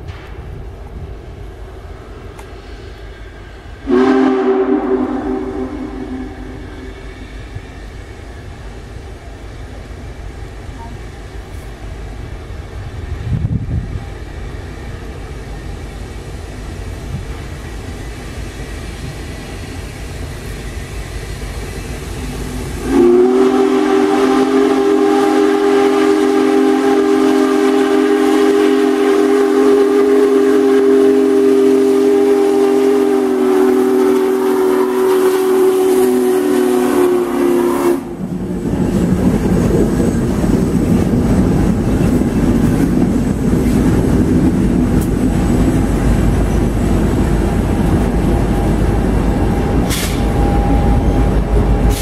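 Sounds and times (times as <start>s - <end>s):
locomotive rumble: 0.0s - 52.0s
steam whistle chord: 3.8s - 7.4s, 22.8s - 38.2s, 48.8s - 52.0s.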